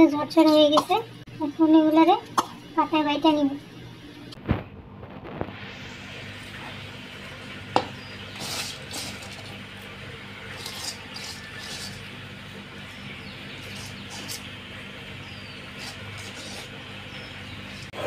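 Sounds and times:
faint steady hum: 0.0s - 18.0s
peels scraped on stone slab: 8.4s - 9.5s, 10.5s - 12.1s, 15.8s - 16.8s.

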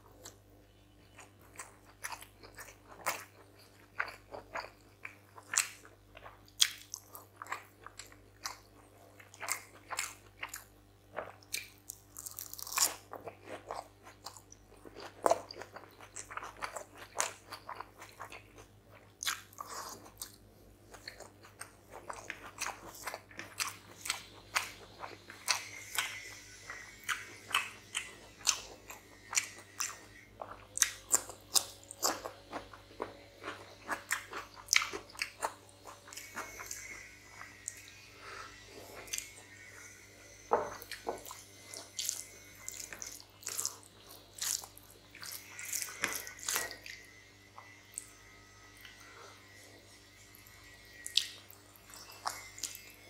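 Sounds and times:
wet chewing and lip smacking: 1.1s - 49.6s, 50.6s - 53.0s.

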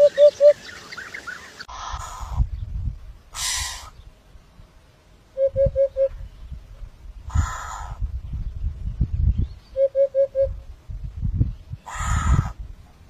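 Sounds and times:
hoopoe hooting: 0.0s - 0.7s.

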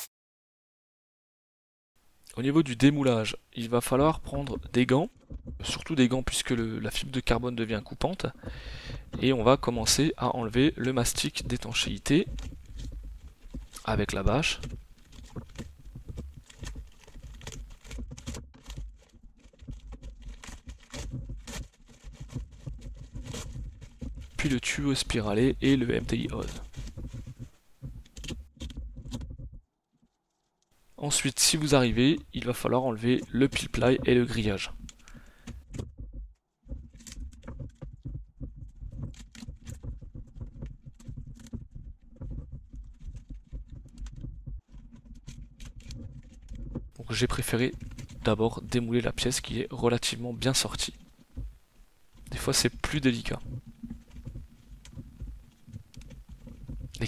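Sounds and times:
plastic crackling and crinkling: 3.8s - 57.0s
plastic film crinkling: 9.2s - 28.6s.

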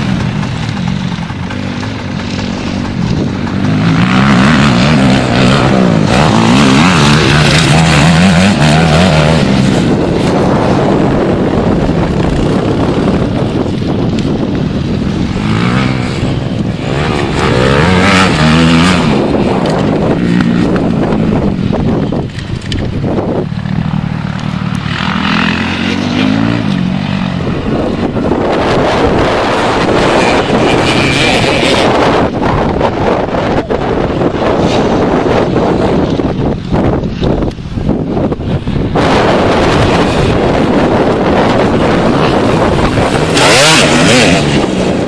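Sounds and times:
dirt bike engines revving: 0.0s - 45.0s.

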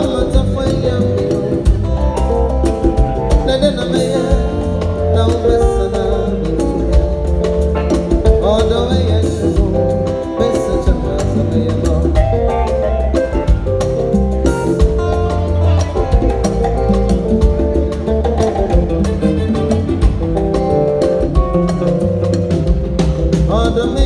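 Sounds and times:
man singing: 0.0s - 13.5s, 23.2s - 24.0s
live band music: 0.0s - 24.0s.

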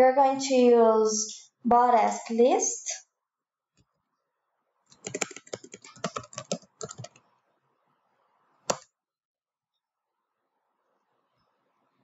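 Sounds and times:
computer keyboard typing: 4.9s - 7.2s
loud keyboard click: 5.0s - 7.2s, 8.7s - 8.9s.

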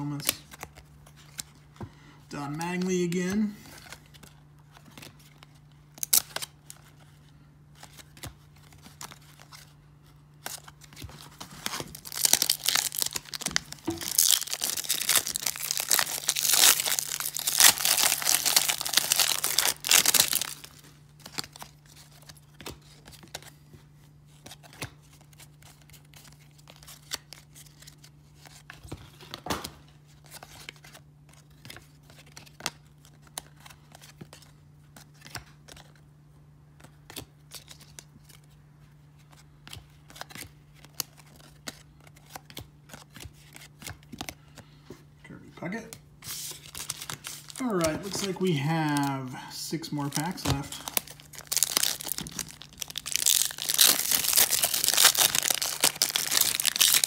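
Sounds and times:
wrapper tearing and crinkling: 11.4s - 21.6s, 50.0s - 57.0s.

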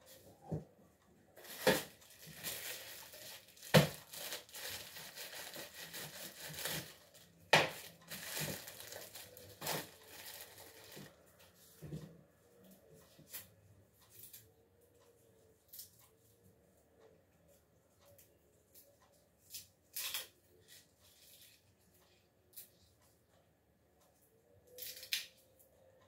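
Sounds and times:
garlic skins crackling: 1.4s - 11.1s.

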